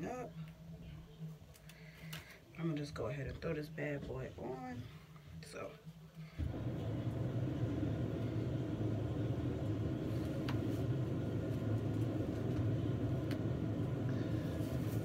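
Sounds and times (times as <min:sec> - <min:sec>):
washing machine rumbling: 0:06.4 - 0:15.0.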